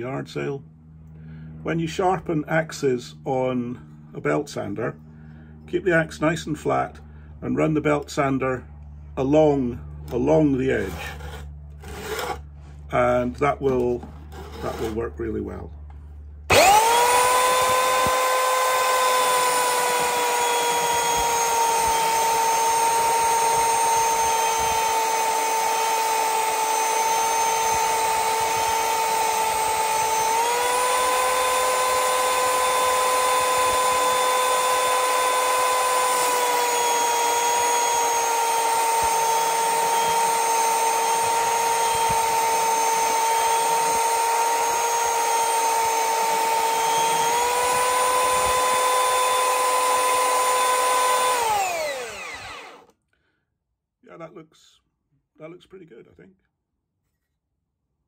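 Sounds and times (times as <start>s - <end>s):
belt sander motor whine: 10.0s - 15.0s, 16.5s - 52.9s.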